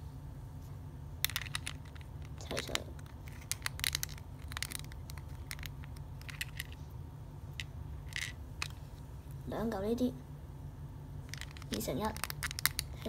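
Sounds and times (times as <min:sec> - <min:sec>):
low steady hum: 0:00.0 - 0:13.0
plastic bricks clicking together: 0:01.2 - 0:06.8, 0:11.3 - 0:13.0.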